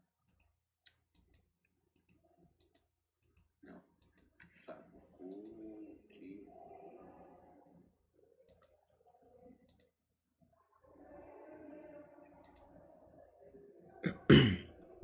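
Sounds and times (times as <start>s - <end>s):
computer mouse clicking: 0.2s - 5.6s, 8.5s - 8.8s, 12.4s - 12.7s.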